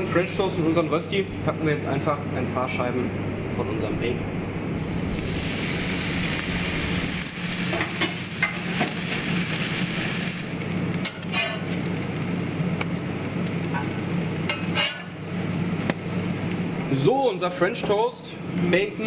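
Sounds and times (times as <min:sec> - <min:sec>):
bacon and toast sizzling: 0:04.8 - 0:17.1
metal spatula scraping: 0:11.0 - 0:11.8, 0:14.5 - 0:15.2.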